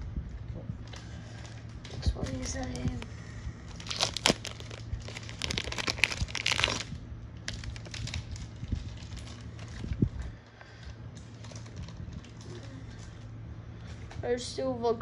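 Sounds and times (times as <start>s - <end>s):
plastic bag crinkling: 0.9s - 10.2s, 11.2s - 13.3s.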